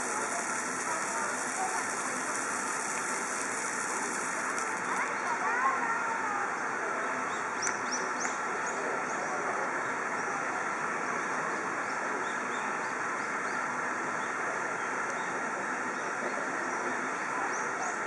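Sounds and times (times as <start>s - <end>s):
small birds chirping: 0.0s - 5.4s
outdoor background noise: 0.0s - 18.0s.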